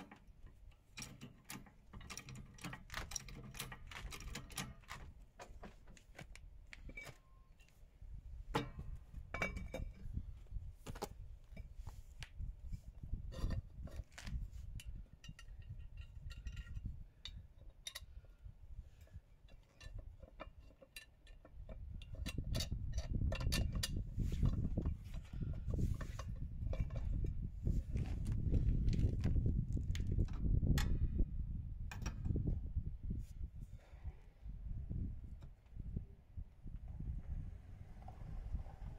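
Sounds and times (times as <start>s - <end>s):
metal parts clinking: 0.0s - 5.1s.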